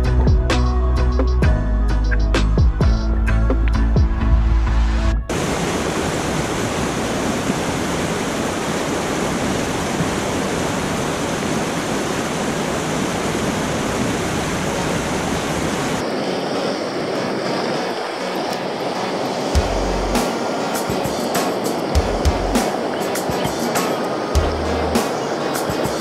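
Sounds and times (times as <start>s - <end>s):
softer river flow: 4.6s - 26.0s
stream rushing through cascade: 5.3s - 26.0s.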